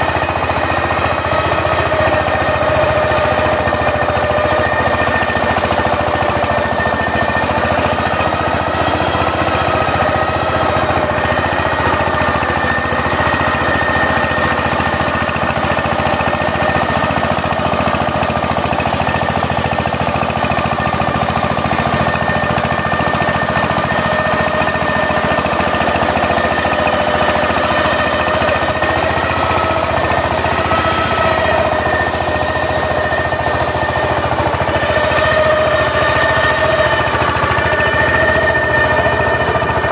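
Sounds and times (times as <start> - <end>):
diesel engine chugging: 0.0 - 39.9
high machine whine: 0.0 - 39.9.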